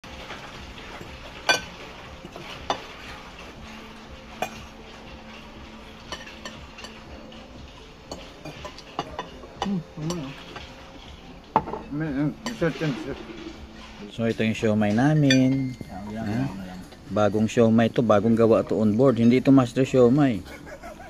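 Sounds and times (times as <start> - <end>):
cutlery clinking on plates: 0.2 - 17.0.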